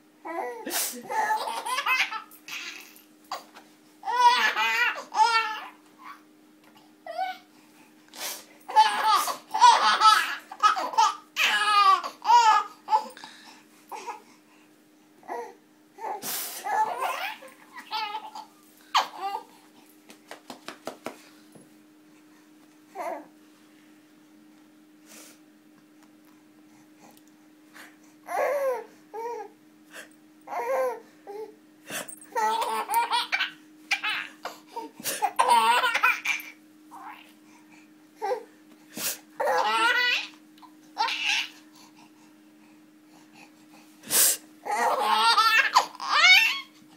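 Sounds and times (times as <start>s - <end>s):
baby laughing: 0.4s - 6.2s, 8.7s - 13.1s, 16.7s - 19.5s, 32.4s - 34.5s, 35.1s - 37.1s, 39.4s - 40.4s, 41.0s - 41.6s, 44.7s - 46.7s.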